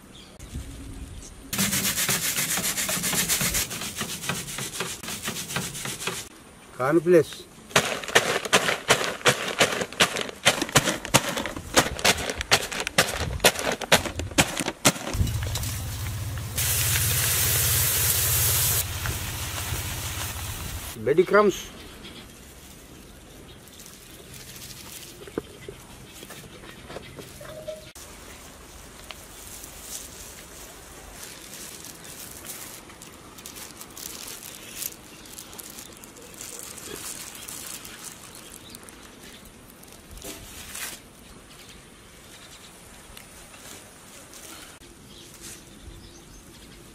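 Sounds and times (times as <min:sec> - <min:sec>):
wooden stick pounding: 0:01.6 - 0:06.3, 0:07.8 - 0:15.3
corn flakes crunching in plastic packet: 0:07.7 - 0:15.2, 0:29.2 - 0:41.0
soft rustling and handling: 0:22.2 - 0:41.6, 0:43.1 - 0:45.7.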